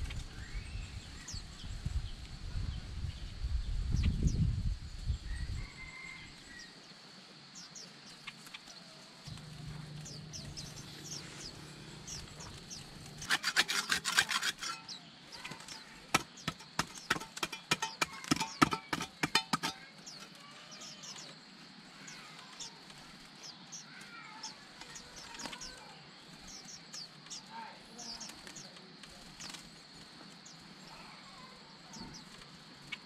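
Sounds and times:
small birds chirping: 0.0 - 33.0
hand hoe chopping stony soil: 13.2 - 15.0, 16.1 - 19.9.

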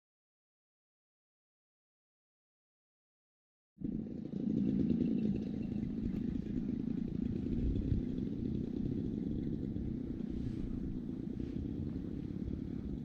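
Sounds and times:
distant model airplane engines: 3.8 - 13.0.

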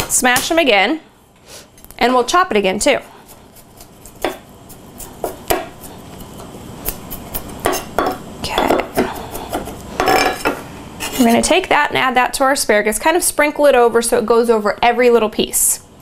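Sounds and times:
knife chopping on wooden board: 3.3 - 10.6.

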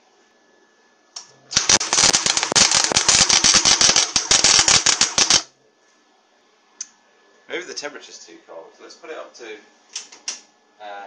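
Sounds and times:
welding arc crackling and popping: 1.5 - 5.5.

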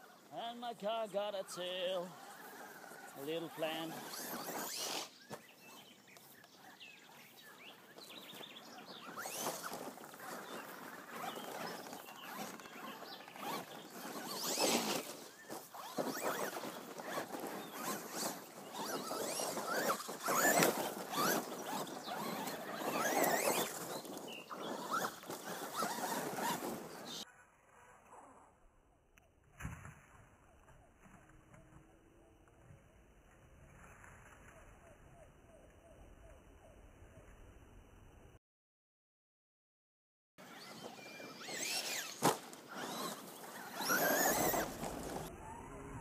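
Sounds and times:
toy truck motor whining: 2.2 - 5.2, 9.0 - 27.3, 40.5 - 46.0
tyres crunching on sand: 8.0 - 27.2, 41.4 - 45.3.

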